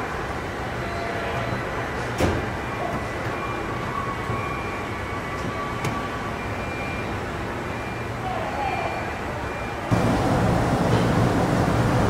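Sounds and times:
factory floor din: 9.9 - 12.0.

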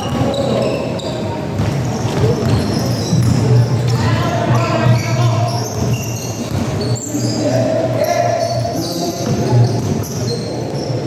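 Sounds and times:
loud background din: 0.0 - 11.0
basketball bouncing on a court: 1.4 - 7.0, 9.2 - 10.8.

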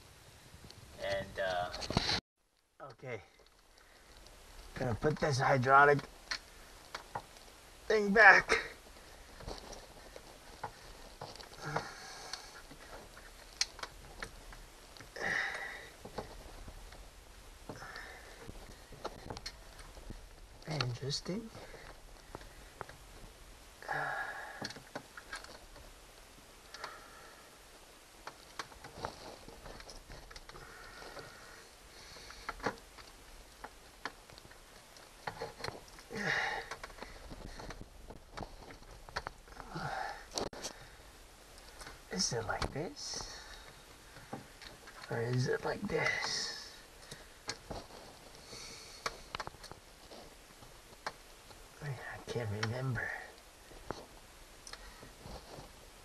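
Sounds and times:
breathy rush: 11.5 - 13.0, 15.2 - 16.2, 23.8 - 24.8, 36.1 - 37.8, 39.5 - 41.1.

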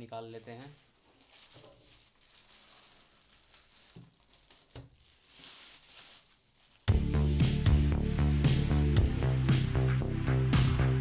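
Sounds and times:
plastic wrapping crinkling: 0.0 - 7.9
music with steady beat: 6.9 - 11.0.

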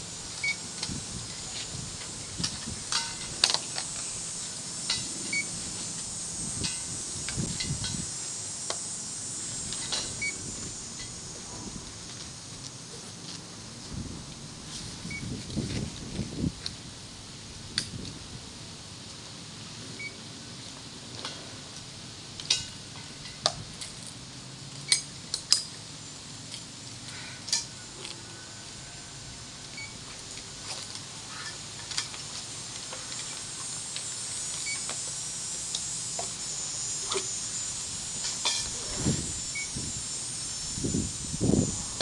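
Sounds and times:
compressed air hissing: 0.0 - 12.7, 32.4 - 42.0.

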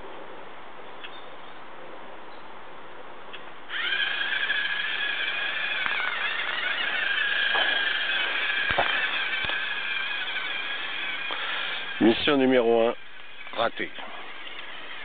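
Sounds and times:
servo motors whining: 3.7 - 15.0
faint clicks: 3.8 - 12.0.

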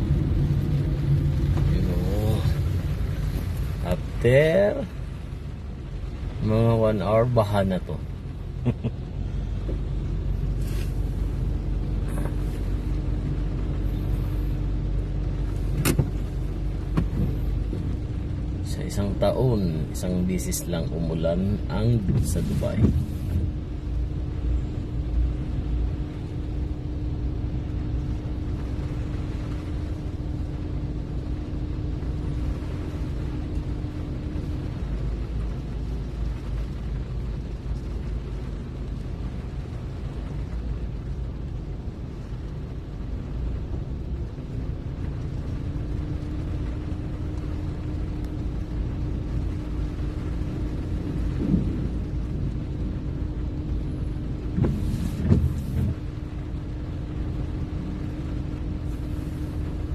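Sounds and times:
low rumble inside a car: 0.0 - 59.9
thin steady hum: 42.2 - 59.9.

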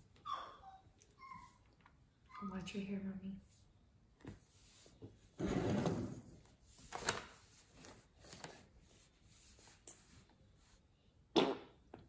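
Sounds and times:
arms rubbing on wooden table: 3.4 - 10.8.

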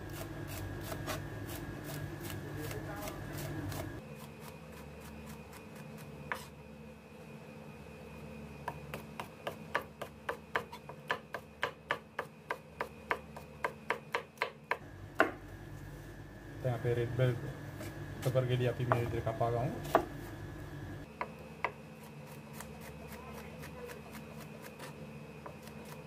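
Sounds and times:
steady low hum: 0.0 - 26.0
knife chopping on cutting board: 8.7 - 15.4, 19.8 - 20.2.

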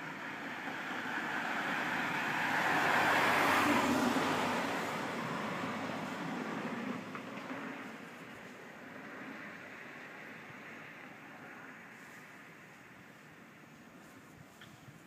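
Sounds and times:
car driving past: 0.4 - 7.9.

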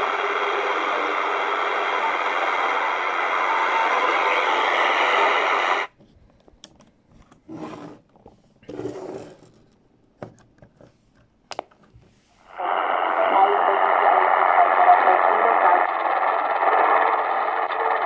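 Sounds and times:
radio jamming signal: 0.0 - 5.9, 12.5 - 18.0.

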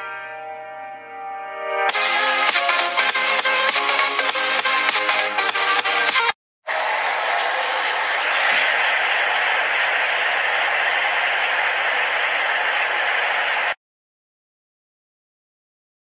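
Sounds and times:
loud static rushing noise: 6.7 - 13.8.

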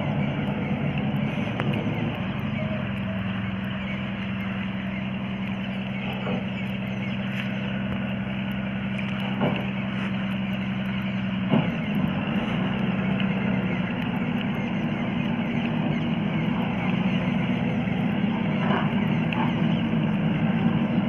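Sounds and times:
vehicle engine humming: 0.0 - 21.0.

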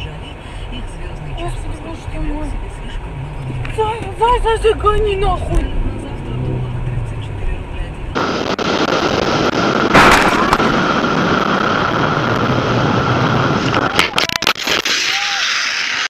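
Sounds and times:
wind and road noise: 0.0 - 16.0
loud bang: 8.2 - 16.0.

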